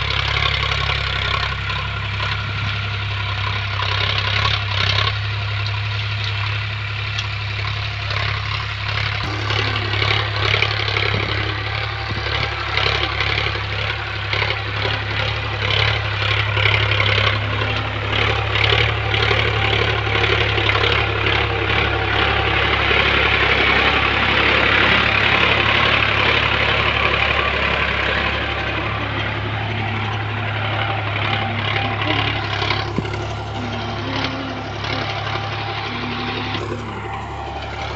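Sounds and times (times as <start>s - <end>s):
cultivator rattling and clattering: 0.0s - 37.9s
tractor diesel engine running: 0.0s - 37.9s.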